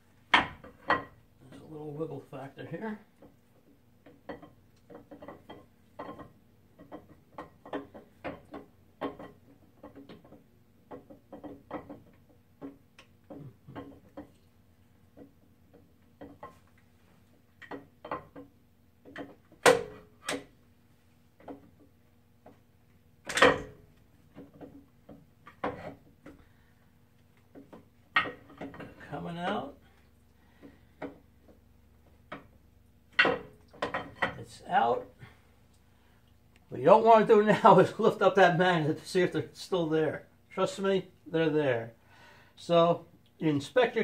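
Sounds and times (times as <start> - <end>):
metallic clicks and knocks: 23.2 - 26.5.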